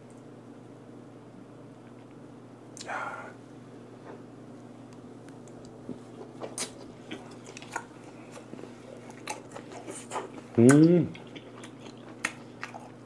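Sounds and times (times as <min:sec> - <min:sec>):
chewing wet smacks and crunches: 0:05.3 - 0:13.0.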